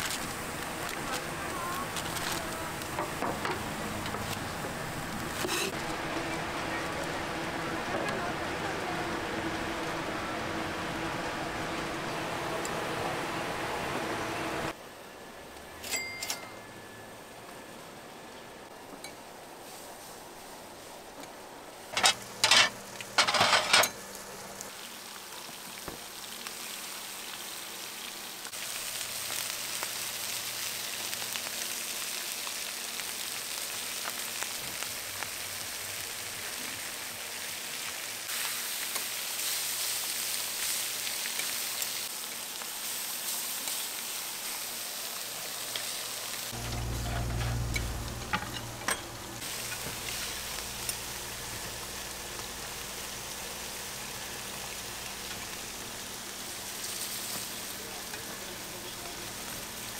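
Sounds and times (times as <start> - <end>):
food sizzling in hot oil: 0.0 - 6.6, 21.8 - 48.6, 49.4 - 59.9.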